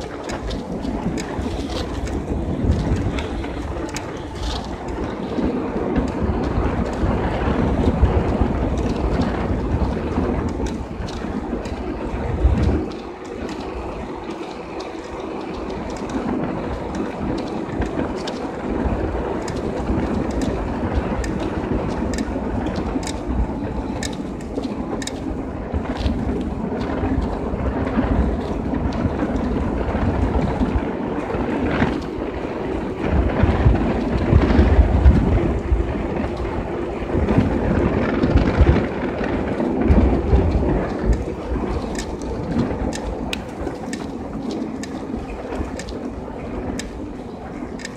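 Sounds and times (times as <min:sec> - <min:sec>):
light ticks: 0:00.0 - 0:32.2, 0:37.2 - 0:47.9
bicycle tyres hissing on wet asphalt: 0:00.0 - 0:47.9
wind buffeting microphone: 0:00.0 - 0:47.9.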